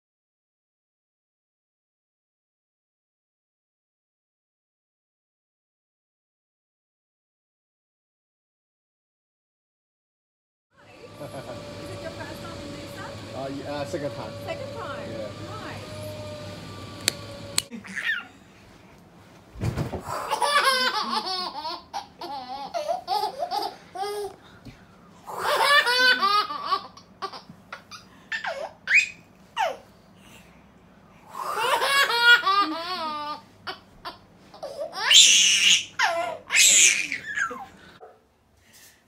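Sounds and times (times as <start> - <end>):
baby laughing: 17.7 - 18.4, 20.1 - 24.4, 25.3 - 29.9, 31.4 - 37.9
baby squealing: 17.8 - 18.3, 25.3 - 29.8, 34.6 - 37.8.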